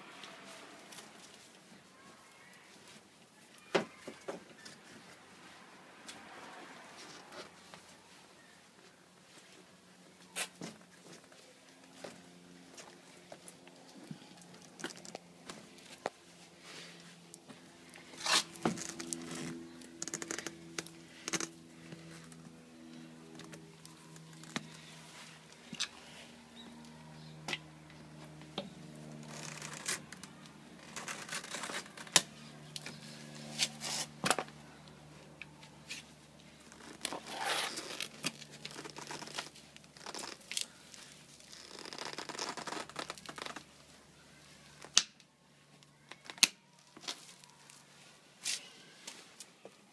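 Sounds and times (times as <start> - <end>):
rustling and scraping: 10.3 - 26.8, 27.6 - 34.6, 35.5 - 44.9.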